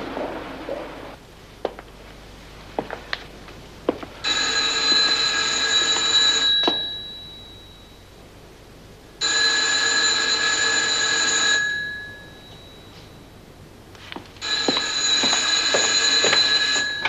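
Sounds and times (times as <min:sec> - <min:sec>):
telephone bell ringing: 0:04.2 - 0:08.1, 0:09.2 - 0:13.3, 0:14.4 - 0:17.0.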